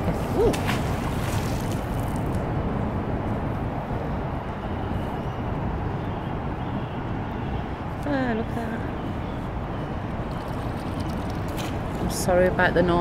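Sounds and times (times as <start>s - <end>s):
traffic rumbling overhead: 0.0s - 13.0s
magnet splashing into water: 0.1s - 2.4s.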